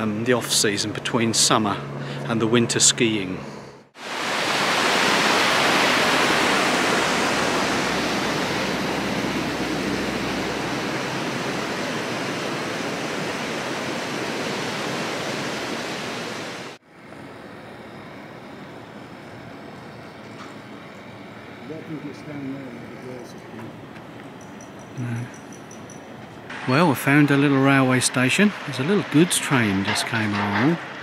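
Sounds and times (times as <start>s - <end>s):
river rushing over rocks: 4.0s - 16.8s.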